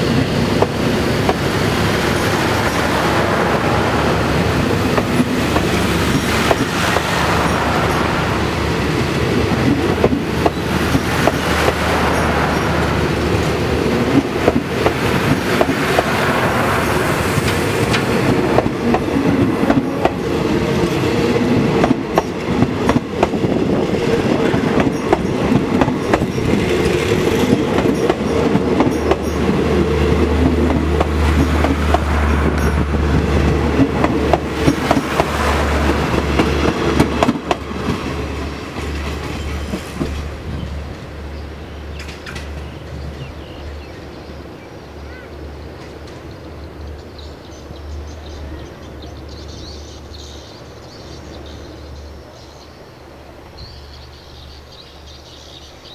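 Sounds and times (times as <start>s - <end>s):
train wheels rumbling over rail joints: 0.0s - 44.0s.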